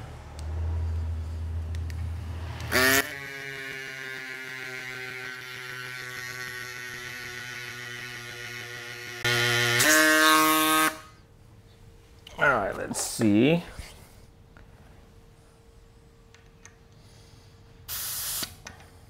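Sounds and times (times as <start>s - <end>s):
mini bicycle pump motor whirring: 2.6s - 11.0s.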